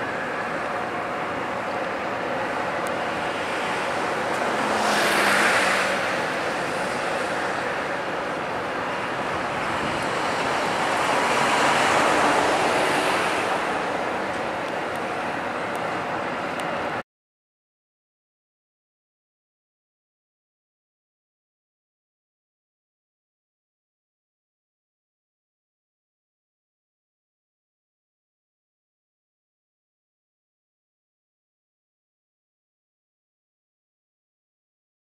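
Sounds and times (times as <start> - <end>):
distant road traffic hum: 0.0 - 17.0.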